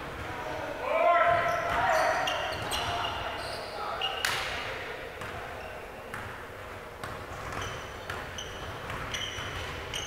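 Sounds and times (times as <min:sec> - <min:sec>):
sneakers squeaking on gym floor: 0:01.3 - 0:04.6, 0:05.2 - 0:06.4, 0:07.0 - 0:10.0.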